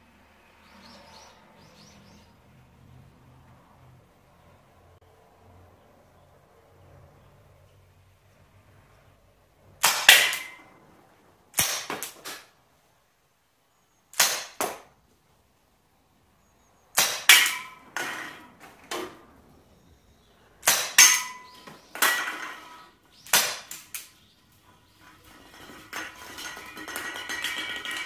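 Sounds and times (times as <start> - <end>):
pellets clinking on cans: 25.1 - 28.0.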